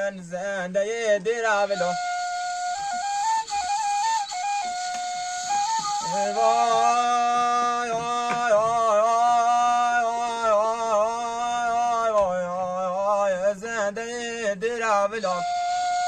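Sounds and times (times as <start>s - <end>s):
wooden flute melody: 1.7s - 8.9s, 15.2s - 16.0s
man singing held note: 5.7s - 12.4s.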